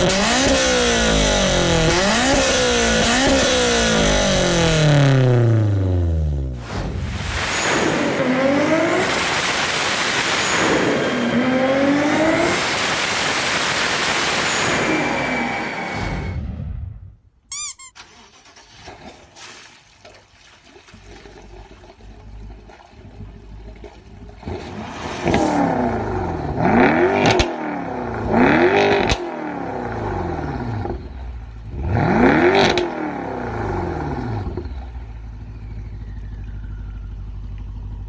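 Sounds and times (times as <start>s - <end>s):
car engine revving: 0.0s - 17.0s, 24.4s - 36.3s
whoosh sound effect: 6.5s - 9.7s, 24.7s - 26.4s.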